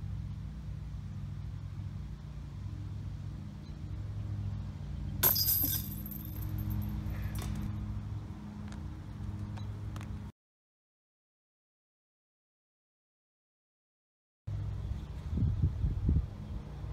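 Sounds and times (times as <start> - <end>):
metallic chains jingling: 5.2 - 7.5
disc clanking chain basket: 5.2 - 7.6.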